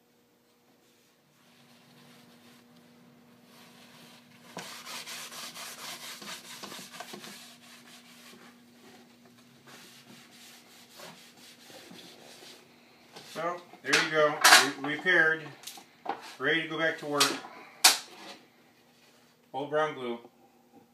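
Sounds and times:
paper towel rubbing on wood: 0.9 - 2.7, 3.4 - 9.0, 9.6 - 13.5.

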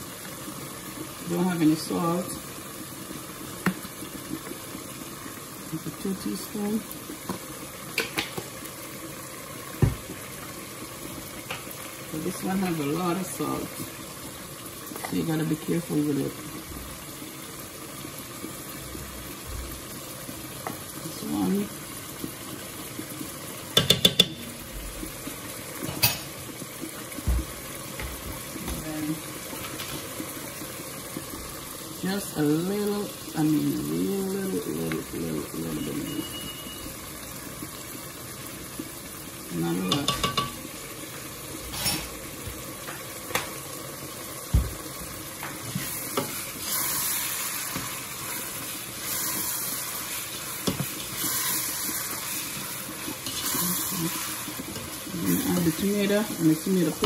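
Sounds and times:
meat sizzling in a pot: 0.0 - 57.0
spoon knocking against pot: 23.8 - 24.4, 39.9 - 40.6.

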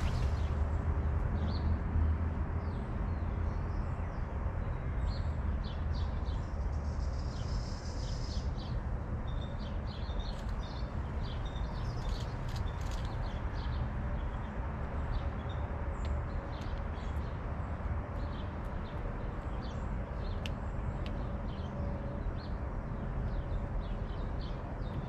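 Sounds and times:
steady low rumble: 0.0 - 1.5
songbirds chirping: 0.0 - 25.0.

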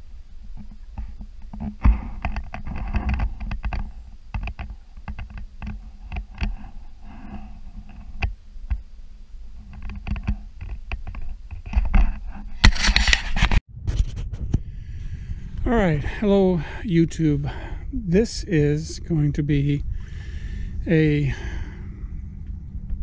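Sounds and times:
low rumble: 13.7 - 23.0.

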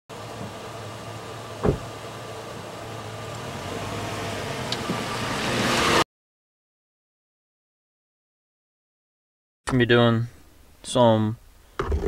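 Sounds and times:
truck engine running: 0.1 - 5.2
loud thump: 1.6 - 1.9.

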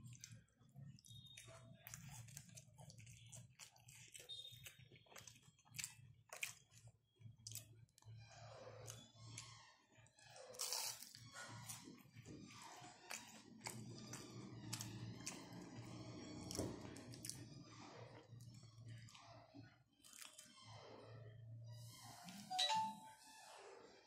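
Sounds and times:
person chewing crunchy food: 0.0 - 9.7, 10.4 - 19.4, 20.0 - 20.6.

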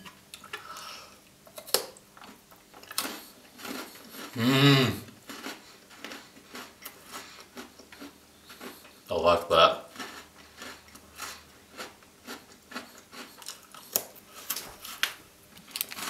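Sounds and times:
biscuit crunching: 1.5 - 9.0, 9.8 - 16.0
person humming: 4.4 - 5.1.

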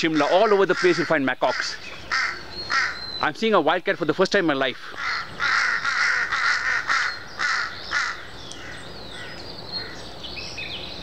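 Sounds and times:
crows cawing: 0.0 - 3.2, 4.6 - 10.0.

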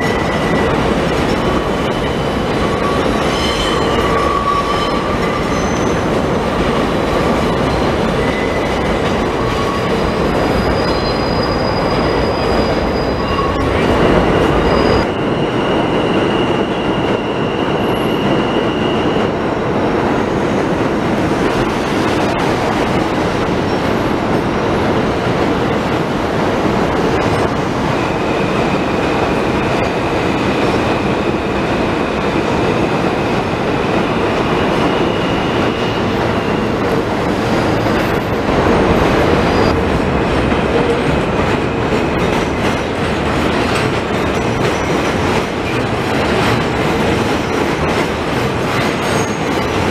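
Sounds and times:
train wheels on rails: 0.0 - 49.9
high-pitched wheel squeals: 2.7 - 6.0, 7.5 - 19.4.

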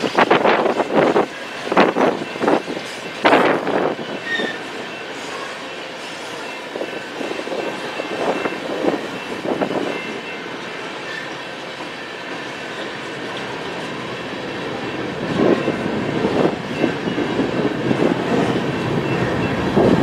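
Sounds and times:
train rumble: 0.0 - 20.0
high wheel squeal: 1.6 - 10.4, 11.0 - 11.5.

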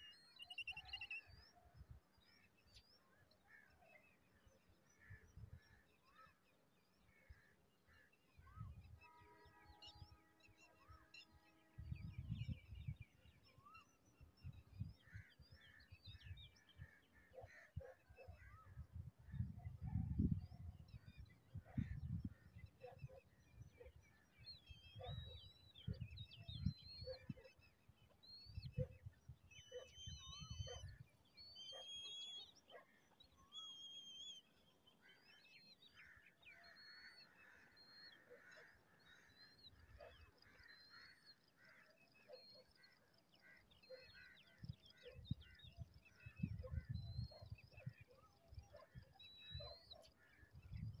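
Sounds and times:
birds chirping and whistling: 29.6 - 32.6, 33.5 - 34.5.

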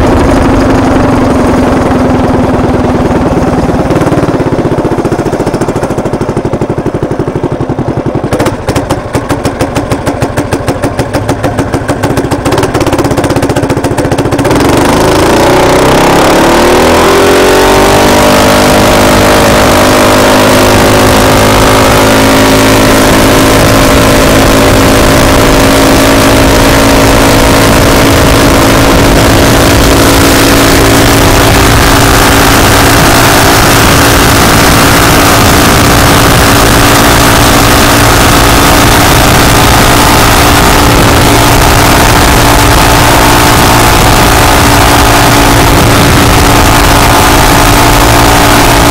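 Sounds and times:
wind rushing over microphone: 0.0 - 10.7, 11.6 - 48.9
minibike engine idling and revving: 0.0 - 48.9.

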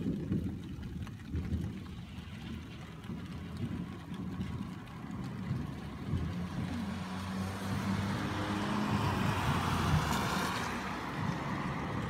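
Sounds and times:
car engine hum: 2.0 - 12.0
tyres hissing on wet road: 4.8 - 12.0.

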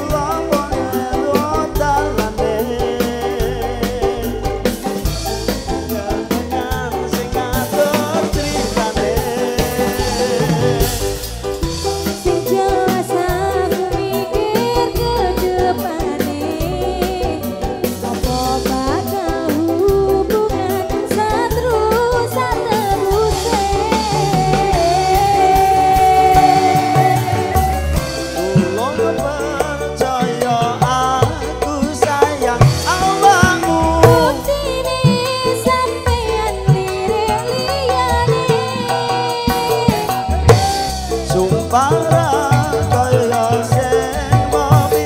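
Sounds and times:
hand drums steady beat: 0.0 - 20.1, 22.3 - 45.0
live band over pa system: 0.0 - 45.0
woman singing into microphone: 0.0 - 45.0.

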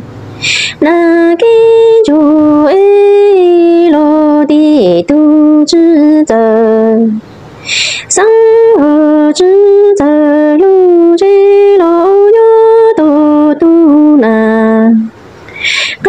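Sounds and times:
breathy hisses: 0.4 - 0.8, 7.6 - 8.1, 15.5 - 16.0
woman singing a sad lament: 0.4 - 16.0.

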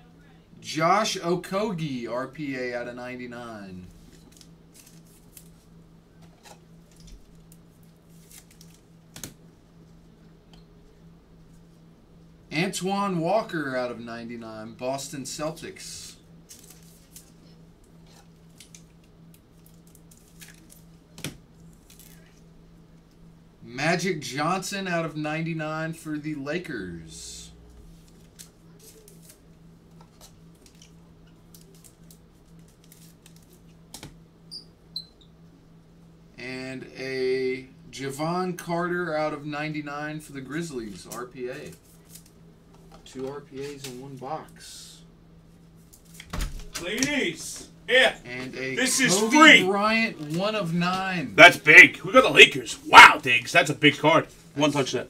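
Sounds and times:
low steady hum: 0.0 - 55.0
trading cards rustling and sliding: 3.9 - 5.7
trading cards rustling and clicking: 4.0 - 5.7, 6.4 - 9.4, 28.0 - 34.1.

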